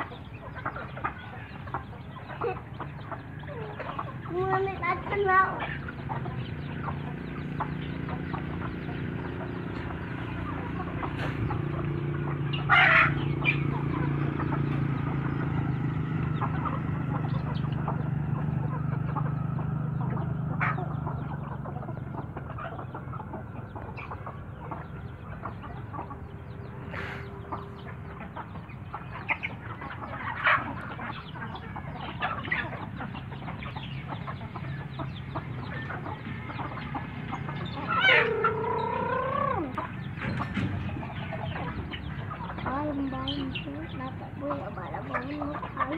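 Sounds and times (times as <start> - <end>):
chickens clucking: 0.0 - 45.9
chicken squawks: 12.5 - 14.6, 19.9 - 40.5.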